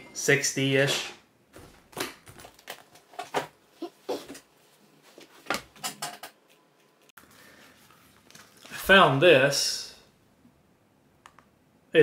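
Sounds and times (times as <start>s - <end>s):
shoes knocking and rustling: 1.5s - 3.5s.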